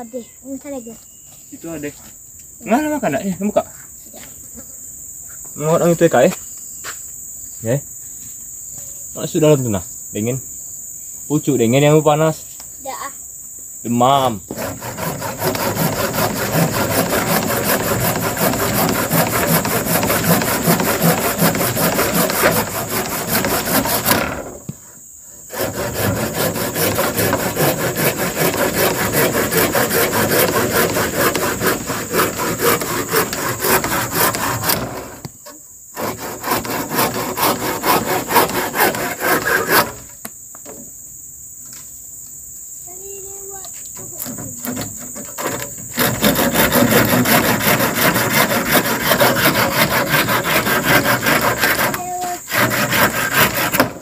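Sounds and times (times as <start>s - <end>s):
high insect drone: 0.0s - 54.0s
hand saw cutting wood: 14.5s - 24.7s, 25.5s - 40.1s, 44.2s - 54.0s.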